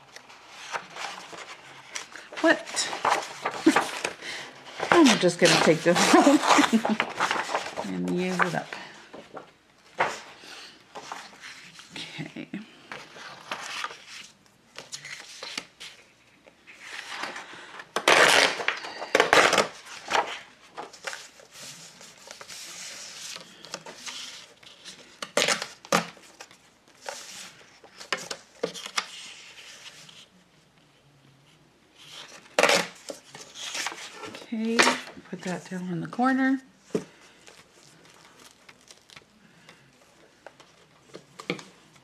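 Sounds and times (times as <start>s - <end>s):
paper rustling and tearing: 0.0s - 9.4s, 16.7s - 30.2s.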